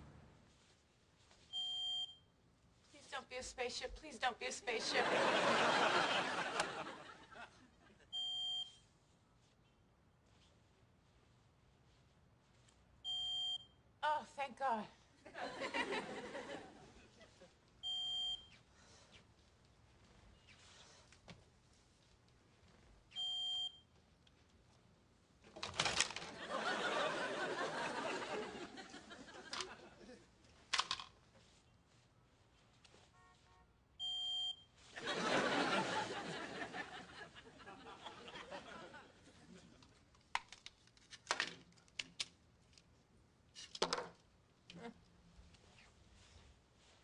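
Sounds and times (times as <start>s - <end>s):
smoke detector beep: 1.5s - 2.3s, 8.1s - 8.8s, 13.0s - 13.8s, 17.8s - 18.6s, 23.1s - 23.8s, 34.0s - 34.8s
studio audience laughter: 4.8s - 8.0s, 15.3s - 17.4s, 26.3s - 30.2s, 35.0s - 39.8s
small objects clicking on wooden table: 43.6s - 44.2s.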